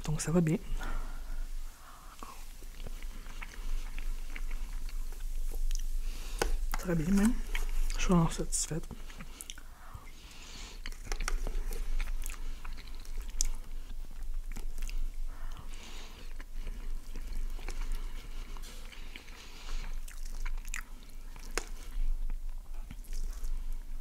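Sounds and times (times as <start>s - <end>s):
wet chewing sounds: 0.8s - 24.0s.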